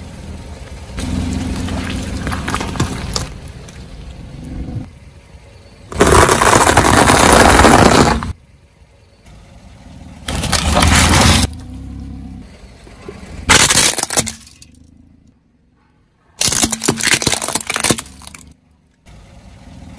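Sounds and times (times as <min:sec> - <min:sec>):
low rumble: 0:00.6 - 0:05.1
tyre crunching snack foods: 0:16.4 - 0:18.6.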